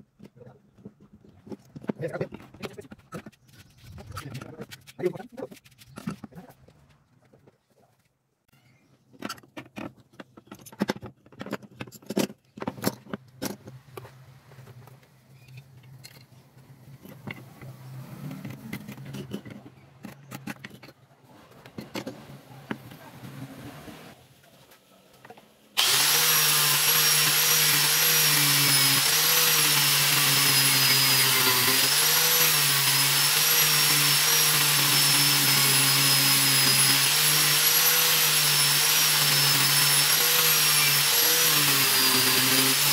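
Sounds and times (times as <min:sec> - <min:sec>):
angle grinder whining: 0:25.8 - 0:42.9.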